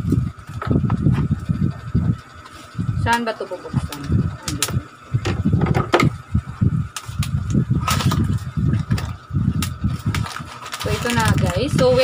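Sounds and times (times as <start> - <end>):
cardboard scraping and rustling: 10.0 - 12.0.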